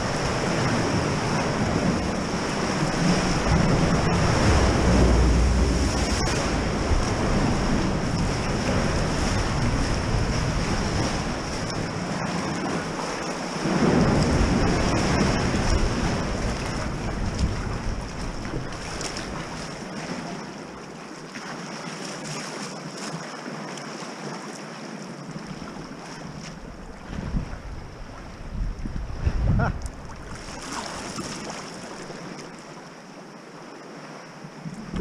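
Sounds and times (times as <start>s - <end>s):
wind buffeting microphone: 0.0s - 19.8s, 26.6s - 30.6s, 34.6s - 35.0s
sea water sloshing against rock: 0.0s - 33.0s.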